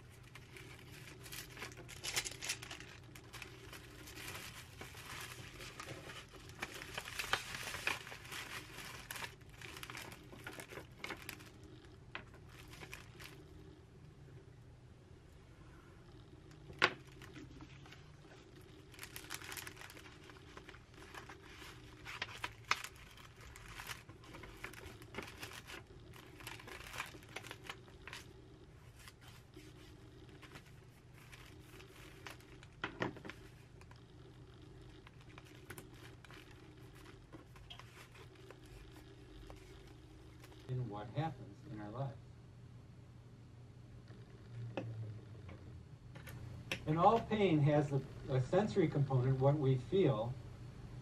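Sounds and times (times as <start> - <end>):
paper envelope rustling: 0.0 - 11.6, 12.2 - 13.4, 16.8 - 33.9, 35.0 - 40.7
low steady hum: 0.0 - 51.0.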